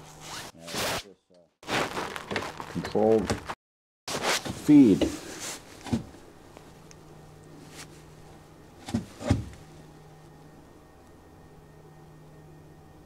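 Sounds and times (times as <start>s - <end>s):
faint steady hum: 4.4s - 13.0s.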